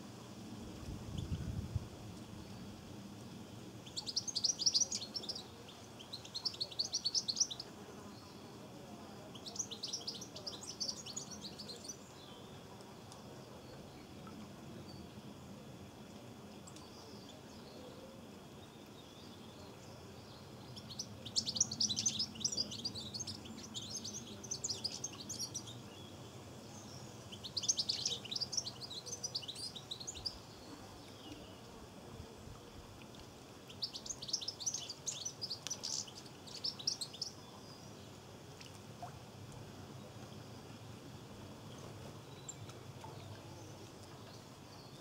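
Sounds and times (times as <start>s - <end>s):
faint background noise: 0.0s - 45.0s
goldfinch chirping: 3.8s - 7.7s, 9.3s - 12.0s, 20.8s - 25.8s, 26.9s - 30.4s, 33.7s - 37.4s.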